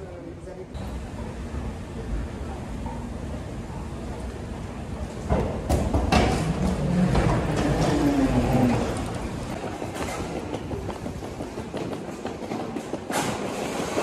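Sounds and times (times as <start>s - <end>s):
wheeled suitcases rolling on tiles: 5.0s - 14.0s.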